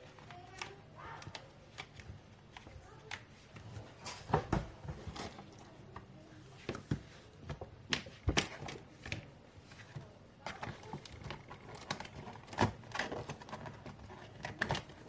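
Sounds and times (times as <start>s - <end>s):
notebook paper and disc clicks: 0.2s - 3.6s, 10.5s - 15.0s.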